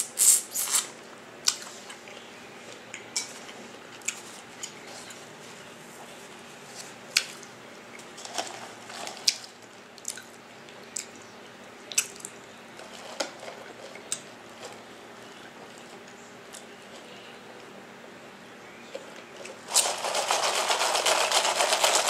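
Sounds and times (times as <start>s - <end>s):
wet eating clicks and smacks: 10.0s - 11.2s, 11.9s - 12.4s.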